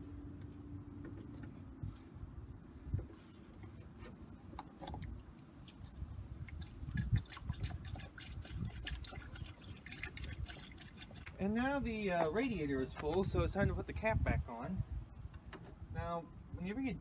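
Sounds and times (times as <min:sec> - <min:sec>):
liquid splashing: 0:04.8 - 0:11.4
liquid pouring through a funnel: 0:06.4 - 0:11.4.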